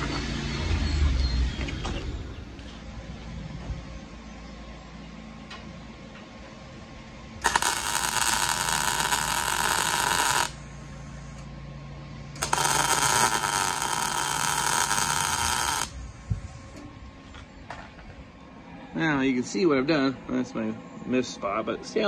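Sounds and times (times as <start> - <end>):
welder crackling: 7.4 - 10.7, 12.4 - 16.0.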